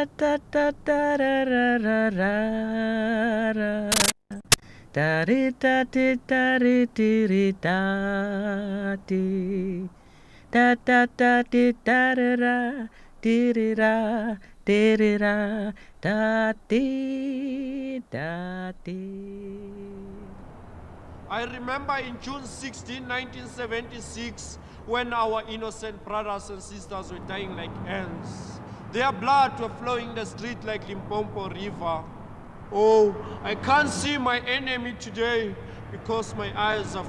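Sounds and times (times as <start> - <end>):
person singing unaccompanied: 0.0 - 20.4, 21.3 - 32.1, 32.7 - 37.0
sharp click: 3.9 - 4.6.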